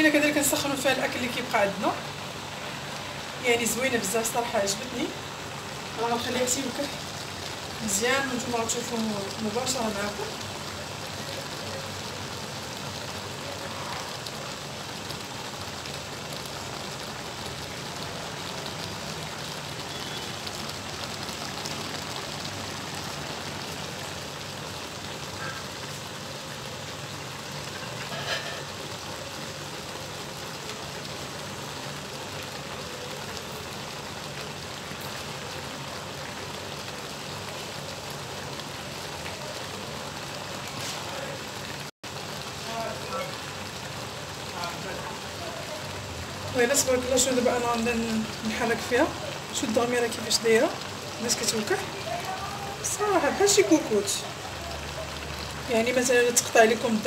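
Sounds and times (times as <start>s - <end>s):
sauce sizzling and bubbling: 0.0s - 57.0s.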